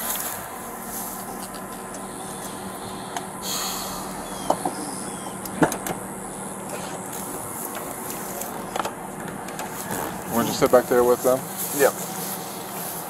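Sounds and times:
steady background noise: 0.0s - 13.0s
sharp clicks and knocks: 5.4s - 6.0s.

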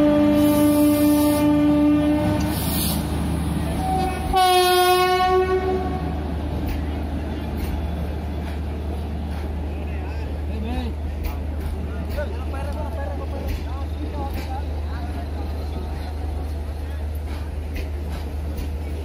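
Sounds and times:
locomotive horn blasts: 0.0s - 2.6s, 3.8s - 6.1s.

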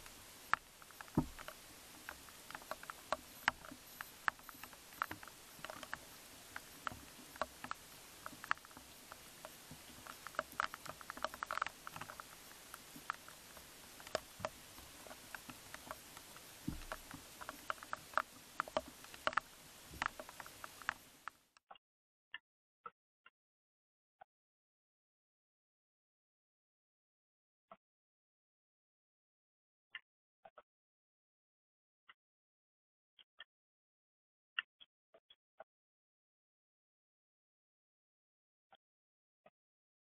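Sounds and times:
dull thumps: 0.0s - 2.3s
steady hiss: 0.0s - 21.4s.

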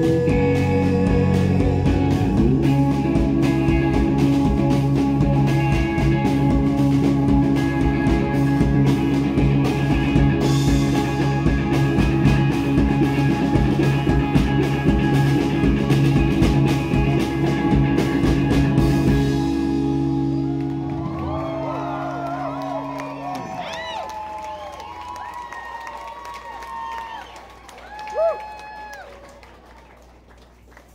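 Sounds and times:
drum kit: 0.0s - 22.5s
electric guitar: 0.0s - 25.6s
bass guitar: 0.0s - 27.2s.

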